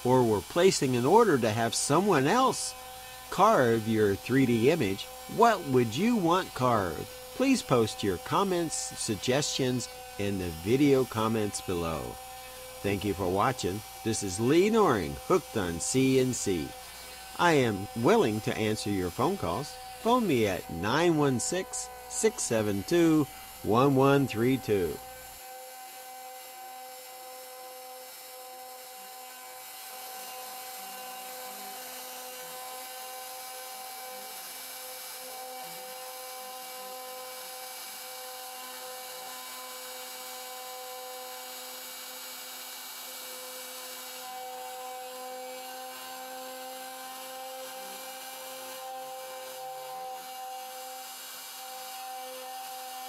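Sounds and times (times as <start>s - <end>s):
bit cutting wood hiss: 0.0s - 25.4s
router motor whine: 0.0s - 53.0s.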